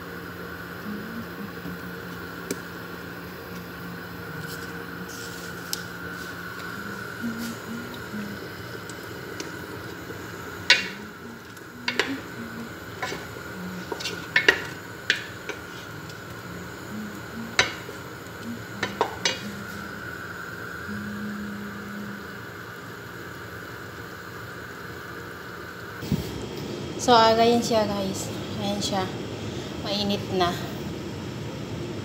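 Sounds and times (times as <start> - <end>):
spoon knocking against metal pot: 10.7 - 11.0, 11.9 - 12.2, 13.0 - 15.6, 17.5 - 17.9, 18.8 - 19.4
wooden spoon stirring thick sauce: 13.0 - 15.9.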